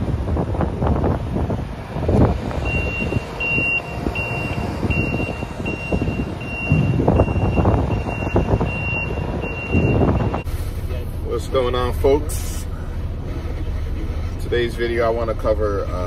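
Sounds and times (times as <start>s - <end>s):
low rumbling noise: 0.0s - 16.0s
reversing alarm beeping: 2.6s - 10.5s.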